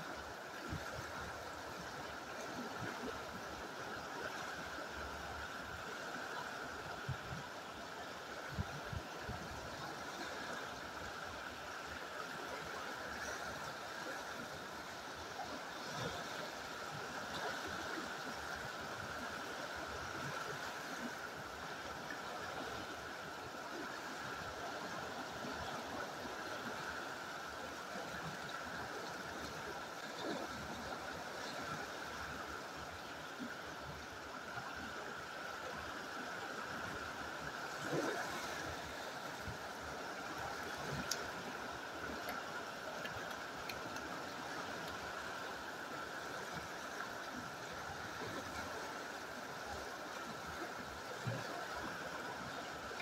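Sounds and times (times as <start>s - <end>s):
river water rushing over rocks: 0.0s - 53.0s.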